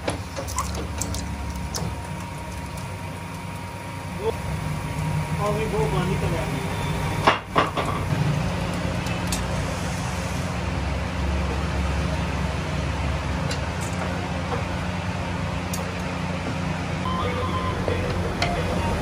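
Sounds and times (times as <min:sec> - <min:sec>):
machine humming: 0:16.9 - 0:19.0.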